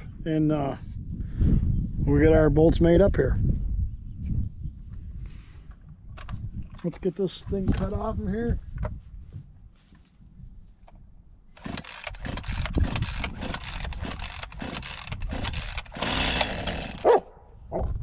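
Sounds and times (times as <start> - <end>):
chainsaw engine cranking: 11.5 - 17.2
chainsaw recoil starter pulls: 11.6 - 17.1.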